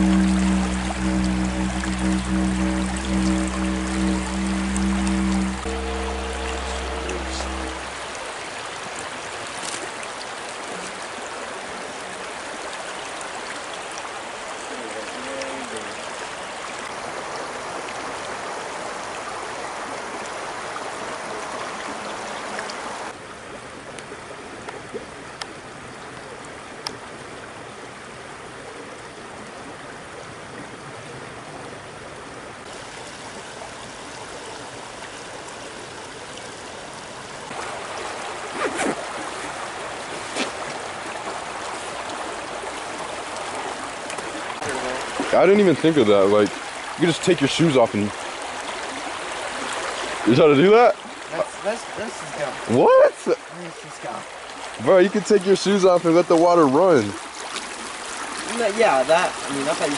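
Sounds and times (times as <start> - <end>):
creek running: 0.0 - 59.9.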